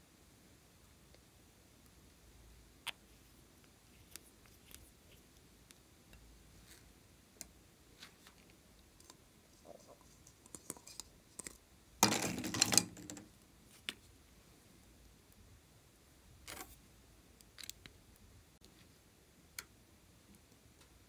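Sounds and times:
plastic glitter tube rattling: 0:09.0 - 0:13.4.

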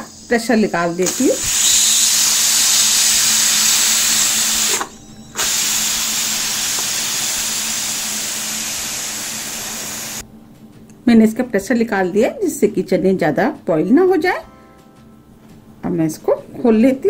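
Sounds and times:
steam hissing from pressure cooker: 0:00.0 - 0:10.2.

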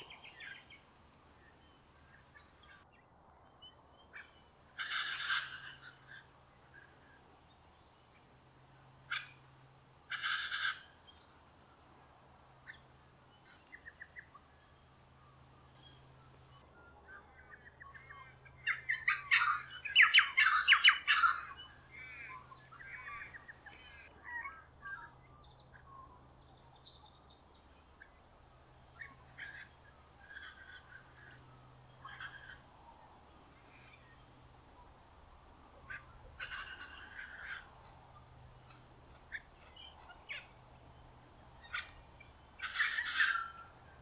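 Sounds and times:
birds chirping: 0:00.0 - 0:02.8, 0:12.7 - 0:44.0
wild birds calling: 0:04.0 - 0:07.0, 0:09.0 - 0:11.2, 0:15.4 - 0:44.0
birds chattering rapidly: 0:17.8 - 0:27.1, 0:28.8 - 0:44.0.

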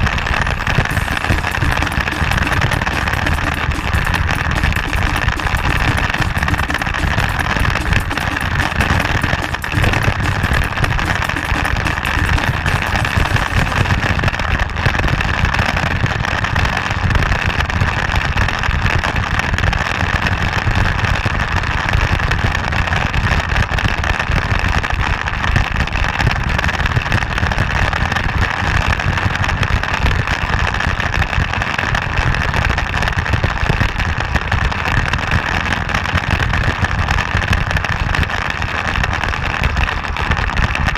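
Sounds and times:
motorcycle engine running: 0:00.7 - 0:14.4.

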